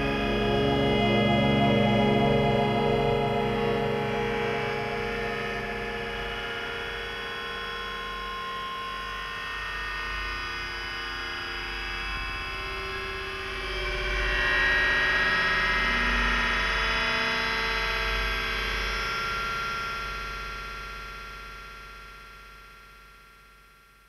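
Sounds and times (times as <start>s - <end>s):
low hum: 0.0s - 7.5s
ambient drone music: 0.0s - 9.1s.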